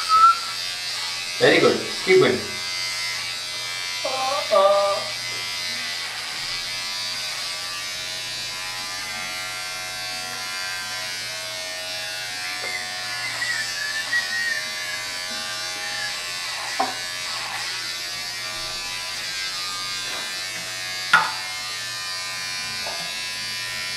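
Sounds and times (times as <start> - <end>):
electric trimmer buzzing: 0.0 - 23.9.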